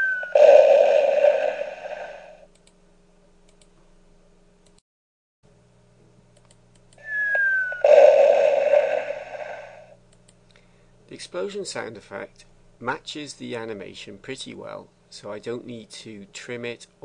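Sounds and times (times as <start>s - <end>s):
falling whistle sound effect: 0.0s - 2.4s, 7.0s - 9.9s
faint clicks: 2.5s - 2.8s, 3.5s - 3.7s, 6.4s - 7.0s
explosion sound effect: 7.8s - 9.9s.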